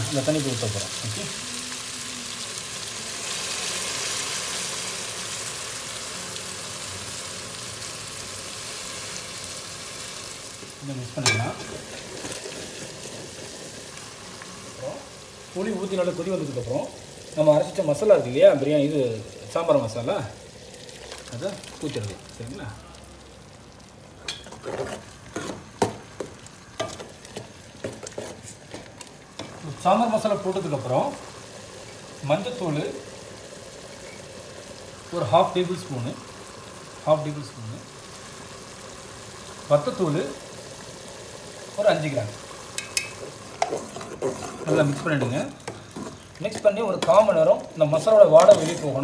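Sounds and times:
gravy simmering: 0:00.0 - 0:49.0
vegetables sizzling in a pot: 0:00.0 - 0:49.0
water pouring: 0:14.8 - 0:25.8
ladle scraping metal pot: 0:42.8 - 0:46.2, 0:48.3 - 0:49.0.

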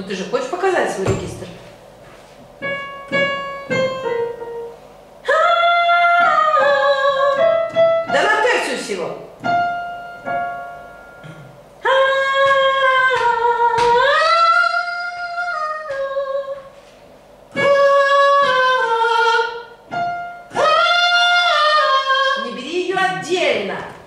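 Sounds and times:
person singing long notes: 0:17.5 - 0:19.7, 0:20.5 - 0:22.5.

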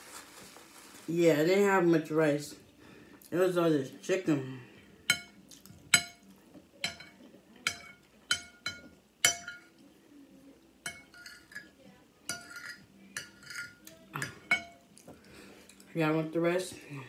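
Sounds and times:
metal spoon clinking on plate: 0:05.1 - 0:09.8, 0:10.8 - 0:14.8.

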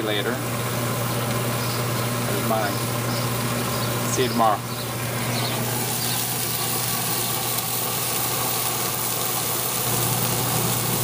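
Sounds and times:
burgers sizzling on a grill: 0:00.0 - 0:11.0.

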